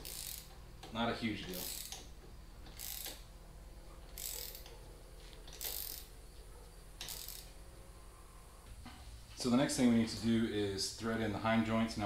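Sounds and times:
ratchet wrench clicking: 0.0 - 3.3, 4.1 - 4.8, 5.5 - 6.1, 7.0 - 7.6.

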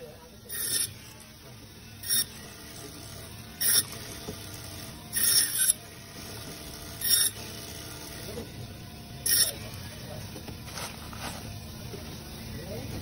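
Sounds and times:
band saw running hum: 0.0 - 13.0
band saw blade rasping: 0.5 - 1.0, 2.0 - 2.4, 3.6 - 4.0, 5.1 - 5.8, 7.0 - 7.5, 9.2 - 9.6.

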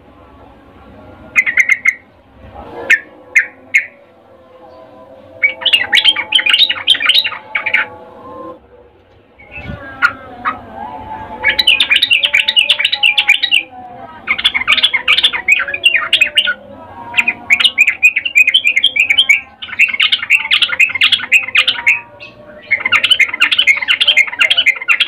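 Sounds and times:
bird chattering call: 1.4 - 2.0.

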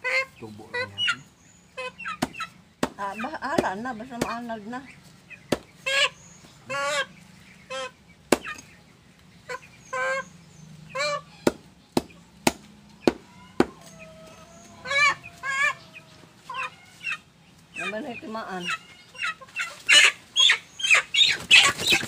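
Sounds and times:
chicken squawking: 0.0 - 8.7, 9.4 - 11.6, 13.2 - 22.0
knife chopping on wood: 11.4 - 13.7.

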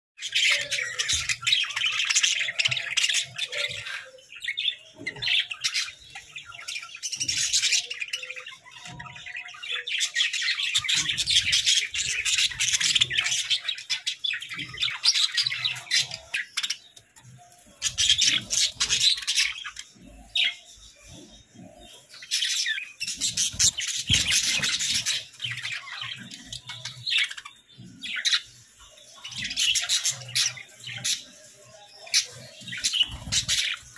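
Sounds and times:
budgerigars chattering and warbling: 0.2 - 33.9.

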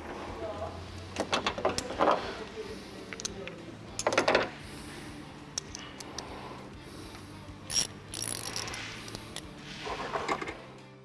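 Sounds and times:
metal tools clicking and rattling: 3.0 - 4.5, 5.6 - 6.2, 7.7 - 9.5.

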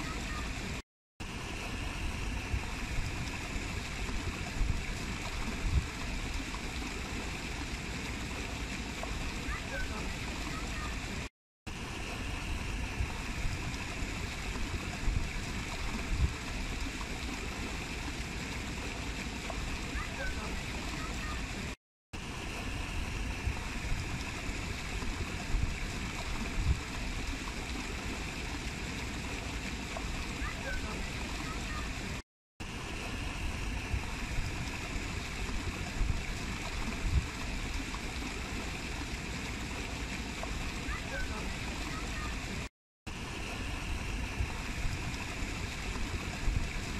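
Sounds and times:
running water rushing: 0.0 - 46.9.

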